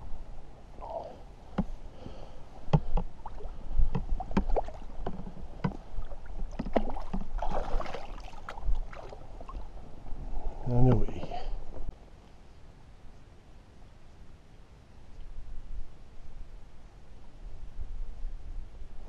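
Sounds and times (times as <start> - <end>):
water sloshing and splashing: 2.7 - 10.0
sharp knocks and clicks: 3.9 - 5.8.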